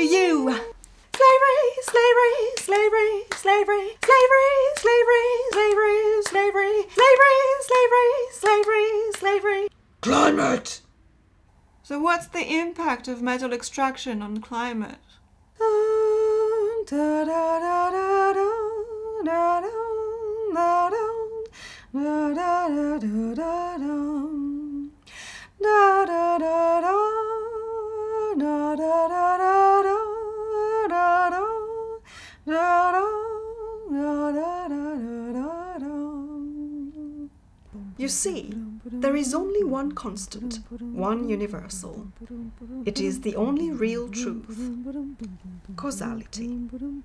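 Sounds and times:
woman humming a melody: 32.6 - 47.0.

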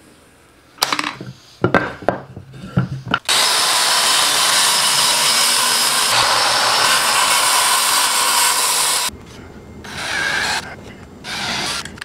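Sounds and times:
circular saw cutting plywood: 3.3 - 9.1, 9.8 - 12.0.

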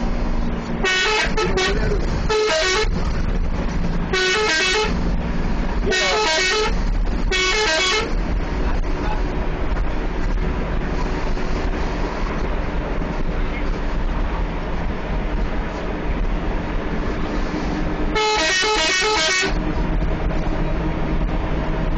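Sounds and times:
bus engine drone: 0.0 - 21.9
road noise: 0.0 - 21.9
melodic multi-tone bus horn: 0.8 - 3.1, 4.0 - 5.0, 5.8 - 8.2, 18.1 - 19.6.

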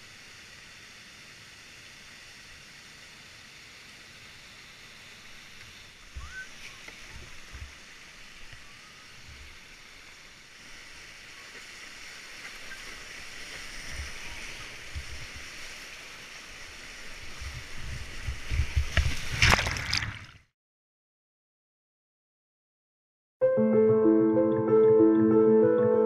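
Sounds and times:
paddle splashes: 5.6 - 20.4
loud water splash: 19.0 - 20.5.

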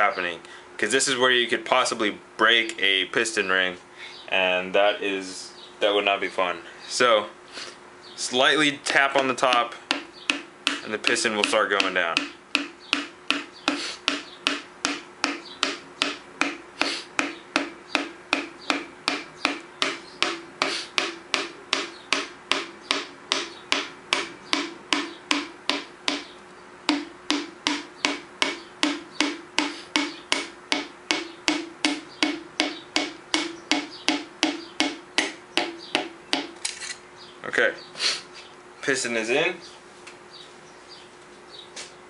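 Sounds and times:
hammer handle tapping piston: 8.9 - 36.6.

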